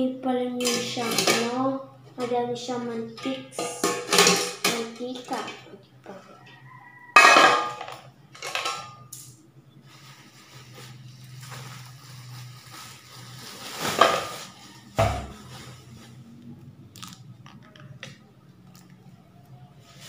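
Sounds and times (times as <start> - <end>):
plastic packaging rustling: 9.8 - 17.1.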